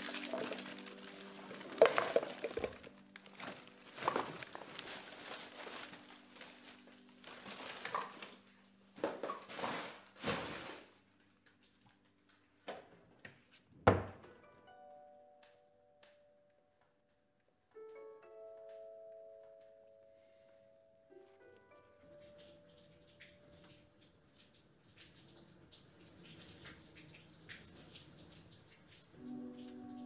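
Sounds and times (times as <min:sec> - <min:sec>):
plastic bin bag rustling: 0:00.0 - 0:11.1
quiet background music: 0:00.0 - 0:30.0.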